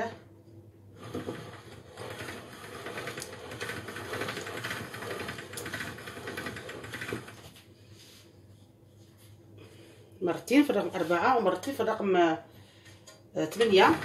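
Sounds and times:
pasta machine crank rattling: 1.0 - 7.5, 13.6 - 14.0.

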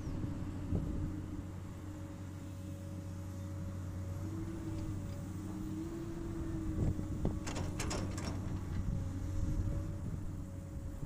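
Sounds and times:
excavator diesel engine running: 0.1 - 11.0.

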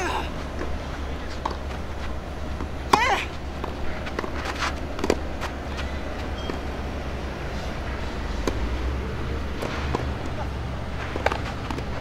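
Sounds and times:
steady low rumble: 0.0 - 12.0
tennis ball hits: 2.6 - 5.3, 8.4 - 12.0.

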